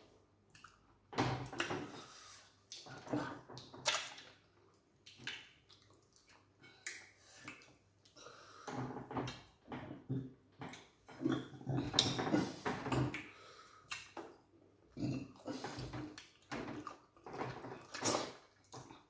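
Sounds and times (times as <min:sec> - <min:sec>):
wet chewing and lip-smacking: 0:05.0 - 0:08.2.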